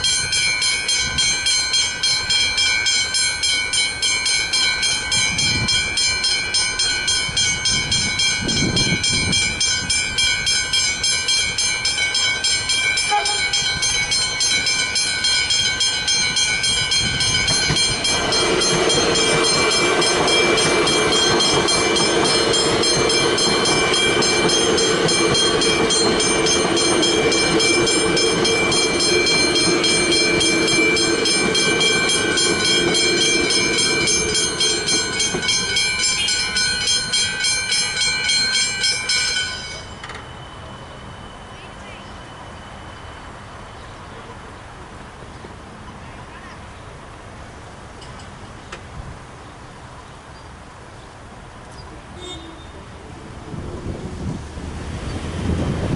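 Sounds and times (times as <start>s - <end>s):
level crossing bells ringing: 0.0s - 43.4s
electric train passing: 0.0s - 55.9s.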